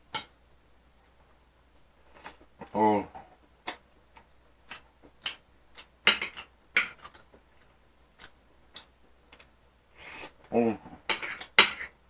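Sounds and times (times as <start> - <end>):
eating smacks and clicks: 3.6 - 9.5.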